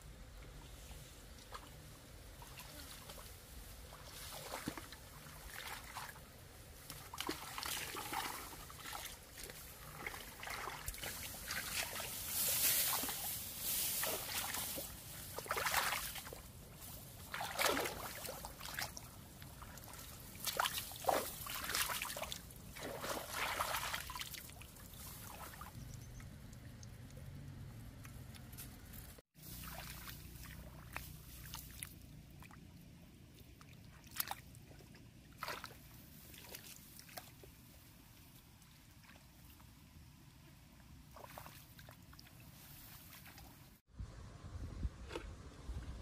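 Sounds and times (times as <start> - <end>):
hands splashing in muddy water: 6.9 - 16.4, 17.2 - 25.7, 35.4 - 37.4.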